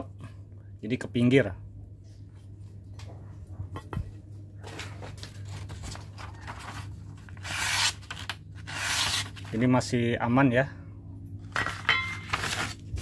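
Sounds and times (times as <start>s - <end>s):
knife slicing through paper: 6.6s - 9.6s.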